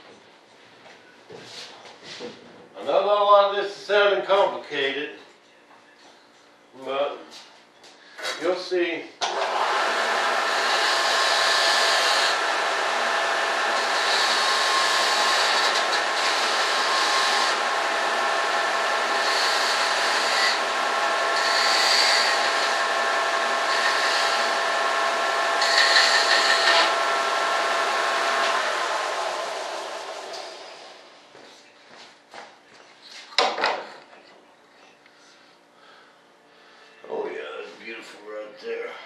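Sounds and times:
electric sander whining: 9.2 - 30.9.

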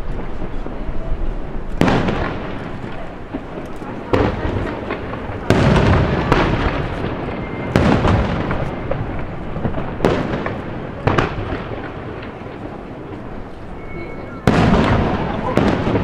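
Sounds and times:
rolling echo and crackle: 0.0 - 16.0.

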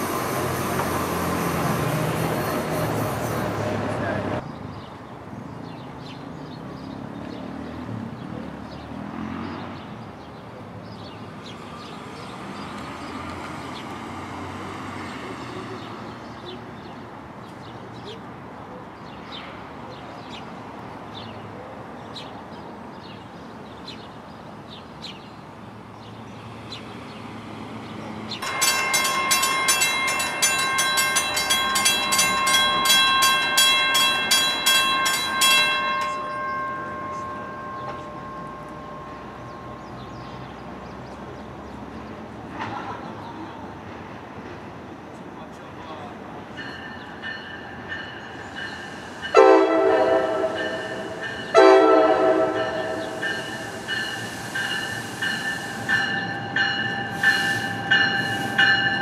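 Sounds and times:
railroad bell ringing: 28.3 - 41.4, 46.5 - 59.0.

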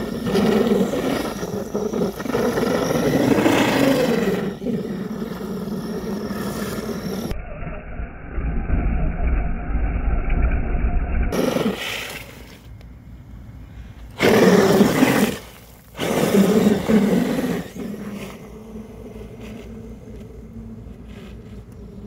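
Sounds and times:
rc truck driving on wet pavement: 0.0 - 7.3, 11.3 - 12.8, 14.2 - 20.3.

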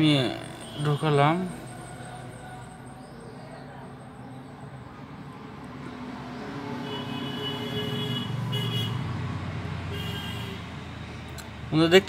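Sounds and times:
high-pitched tones: 0.0 - 5.4.

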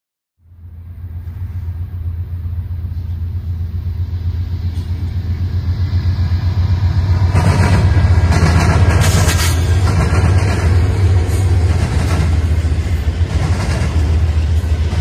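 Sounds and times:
diesel locomotive engines rumbling: 0.4 - 15.0.

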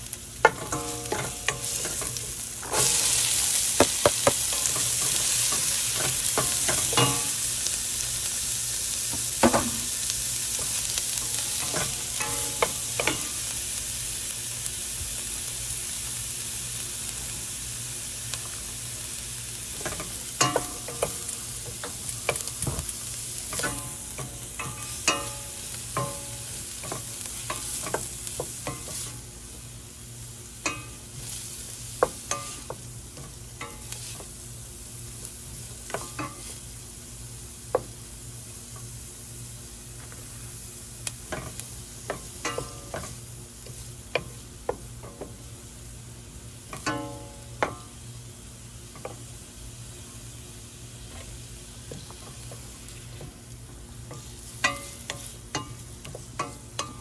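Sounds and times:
food sizzling in a pan: 0.0 - 57.0
utensil clinking and scraping pan: 0.4 - 7.4, 10.6 - 13.4.

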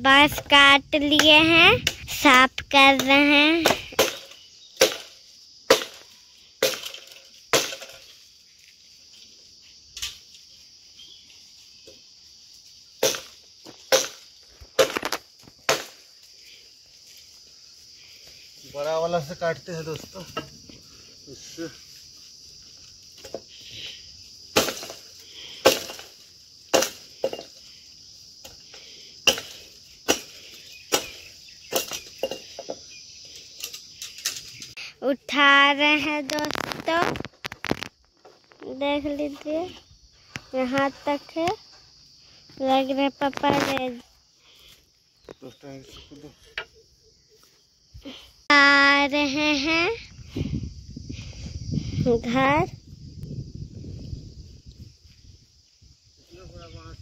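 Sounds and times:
high insect buzz: 0.0 - 57.0
blade chopping bamboo: 3.6 - 5.1, 5.7 - 6.0, 6.6 - 8.0, 13.0 - 13.3, 14.8 - 16.0, 24.5 - 25.0, 25.6 - 26.1, 26.7 - 27.5, 29.3 - 32.4.

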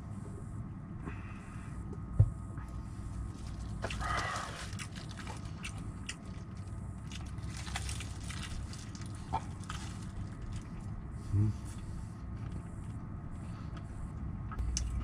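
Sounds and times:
low hum: 0.0 - 15.0
chewing fried chicken crunches: 3.3 - 11.0.

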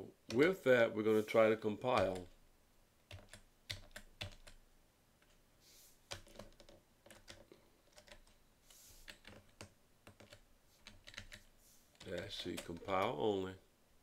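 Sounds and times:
computer keyboard keystrokes: 3.1 - 4.6, 6.1 - 8.4, 9.0 - 13.1.

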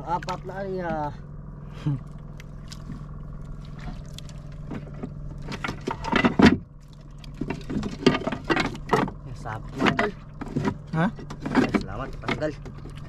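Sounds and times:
boat engine humming: 0.0 - 13.0
knocks and handling noises: 4.6 - 6.7, 7.3 - 13.0.

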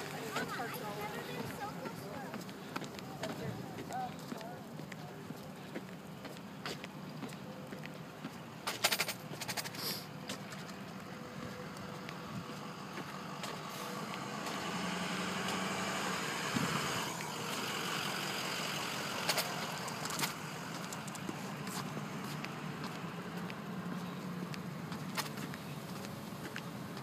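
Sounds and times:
fire truck engines idling: 0.0 - 27.0
sharp clicks: 8.6 - 9.8.

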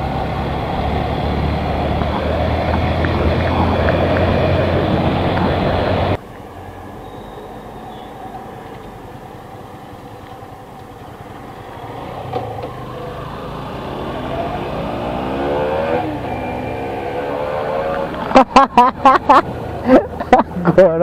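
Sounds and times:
motorcycle engine revving: 0.0 - 6.2, 11.0 - 20.1
wind rush: 0.6 - 6.2.

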